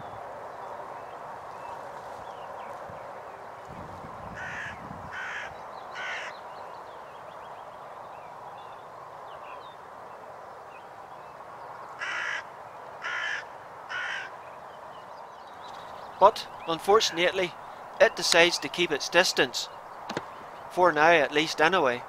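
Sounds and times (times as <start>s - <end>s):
crow cawing: 4.4s - 6.4s, 12.0s - 14.4s.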